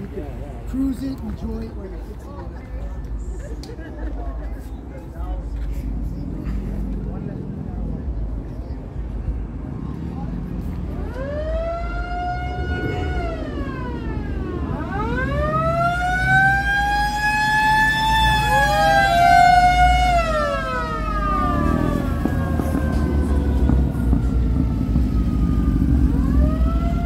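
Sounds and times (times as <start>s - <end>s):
low rumble of vehicles: 0.0s - 27.0s
siren wailing: 11.0s - 27.0s
second siren tone: 11.1s - 16.6s.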